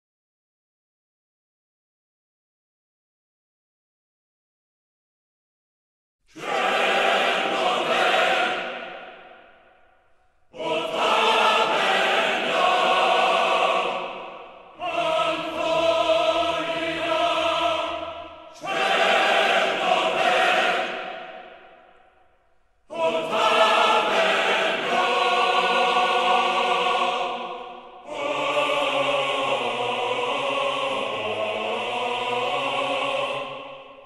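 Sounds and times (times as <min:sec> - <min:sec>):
choir chanting: 0:06.3 - 0:22.3, 0:22.9 - 0:34.0.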